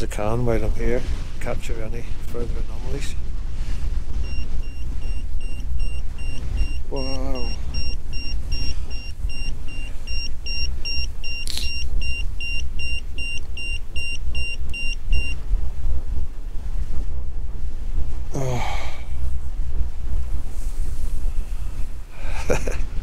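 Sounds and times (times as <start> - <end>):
wind rumble on microphone: 0.0 - 23.0
meter beeping rapidly: 4.2 - 15.4.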